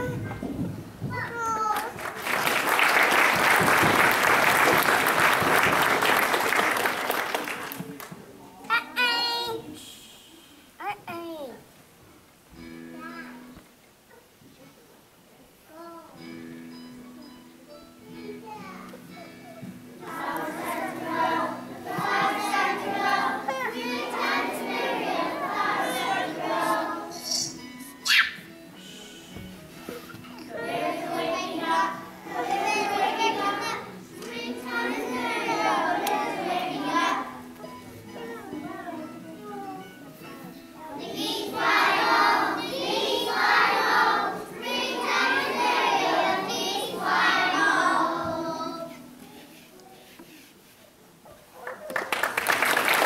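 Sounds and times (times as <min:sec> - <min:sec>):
children singing together: 0:20.0 - 0:27.6, 0:30.0 - 0:38.9, 0:40.8 - 0:49.1.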